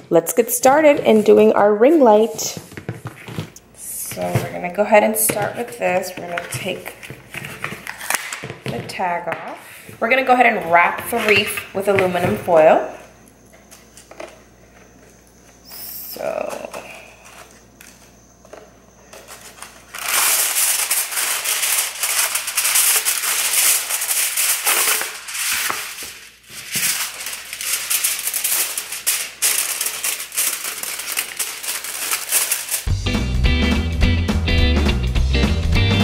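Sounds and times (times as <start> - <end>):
aluminium foil crinkling: 5.6 - 8.5, 16.2 - 32.9
guitar music: 32.9 - 36.0.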